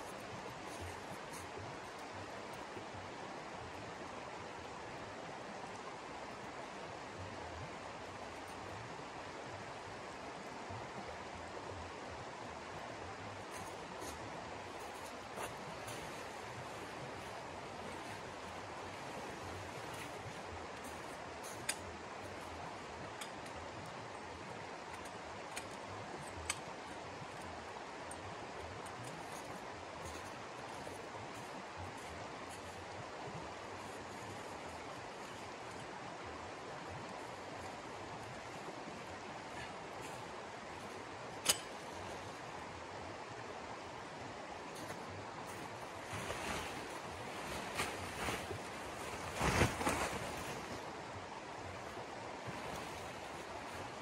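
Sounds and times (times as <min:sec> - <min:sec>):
steady background hiss: 0:00.0 - 0:54.0
tarp whooshing swishes: 0:46.0 - 0:51.0.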